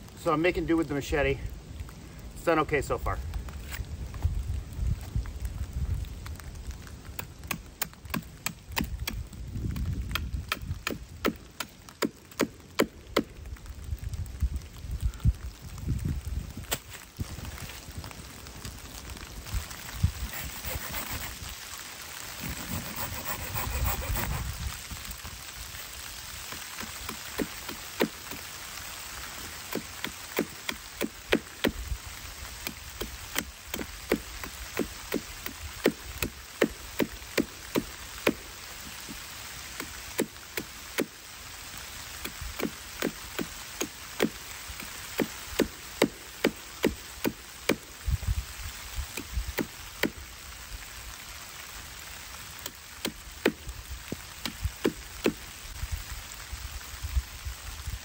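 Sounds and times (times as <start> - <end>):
light rain in woodland: 0.0 - 58.0
blade cutting wooden stick: 20.2 - 21.4, 22.4 - 24.5.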